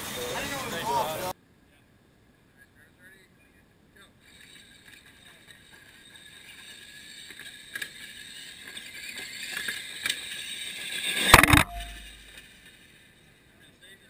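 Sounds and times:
truck striking camera clatter: 11.3 - 12.2.

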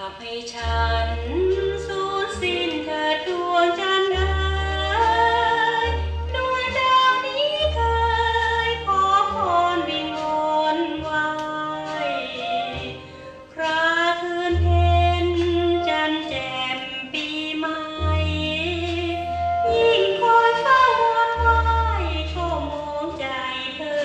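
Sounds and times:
woman singing slow melody: 0.0 - 24.0
pulsing bass line: 0.6 - 10.2, 14.5 - 16.4
orchestral accompaniment: 0.6 - 24.0.

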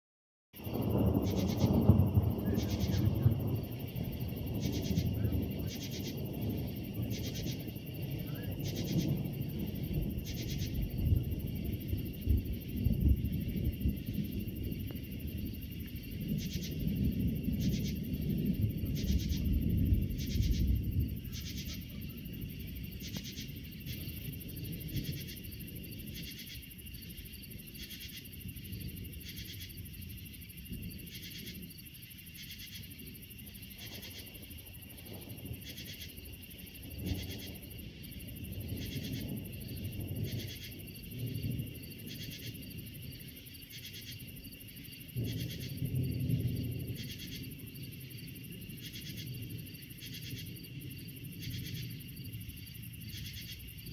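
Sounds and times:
night insects chirping: 0.6 - 53.9
thunder rolling: 0.6 - 53.9.

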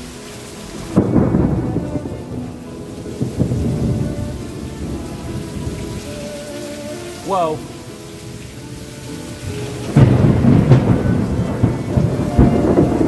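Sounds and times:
rain hissing: 0.0 - 13.0
thunder crack and rumble: 0.8 - 6.1, 9.8 - 13.0.

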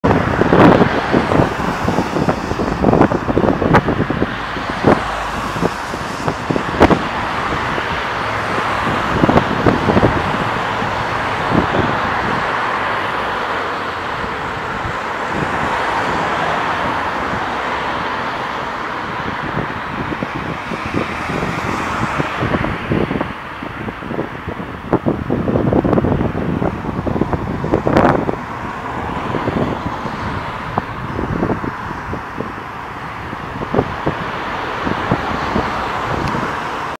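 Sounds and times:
road traffic noise: 0.0 - 36.9
wind on microphone: 0.0 - 36.9.

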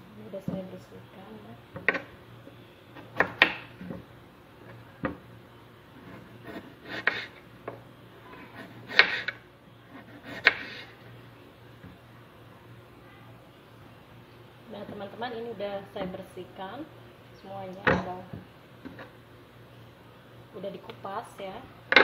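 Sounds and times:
knife scraping gourd skin: 6.0 - 7.4, 8.4 - 11.0.

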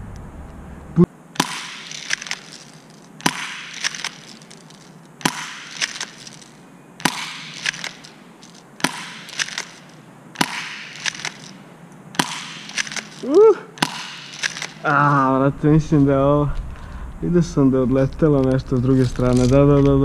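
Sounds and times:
airsoft pistol shots: 1.4 - 2.5, 3.2 - 4.4, 5.2 - 6.3, 7.0 - 8.2, 8.8 - 13.2, 13.8 - 14.8
pellets striking plastic target: 1.4 - 11.6, 12.2 - 14.9.

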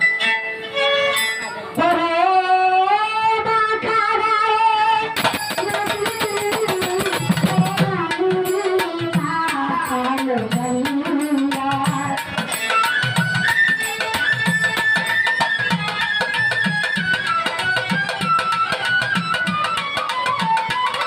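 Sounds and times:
violin folk melody: 0.0 - 21.0
sharp jingling percussion: 1.0 - 1.7, 5.2 - 21.0
hand drum beats: 5.2 - 21.0.

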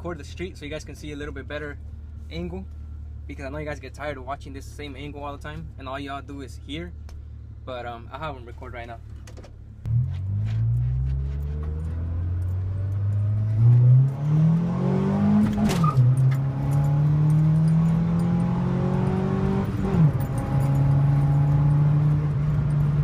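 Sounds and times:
car engine accelerating: 9.8 - 23.0.

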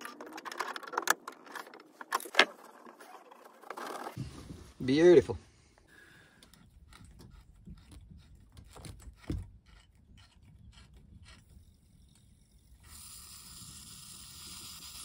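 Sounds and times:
hand tool clicks and scrapes: 6.4 - 12.2.

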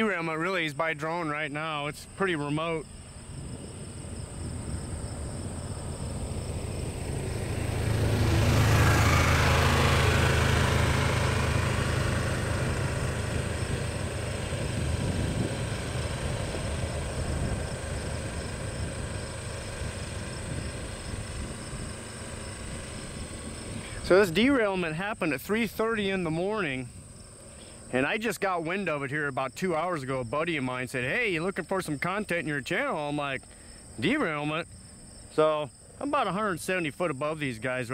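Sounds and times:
high insect buzz: 1.3 - 24.2, 25.9 - 28.2, 33.4 - 36.0
vehicle engine rumble passing: 2.8 - 36.5.

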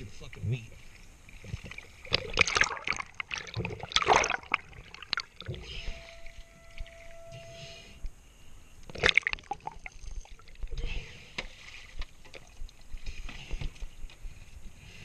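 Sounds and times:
water sloshing against boat: 0.0 - 8.2, 8.8 - 14.6
loud splash: 2.1 - 5.5.

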